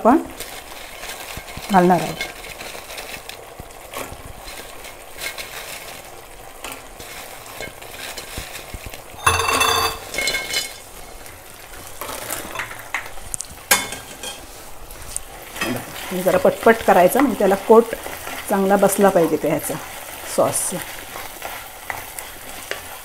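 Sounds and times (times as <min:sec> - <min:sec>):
sauce sizzling in a pan: 0:00.0 - 0:23.0
wooden spatula scraping a pan: 0:00.4 - 0:23.0
food tipped into pan clatter: 0:09.2 - 0:10.7.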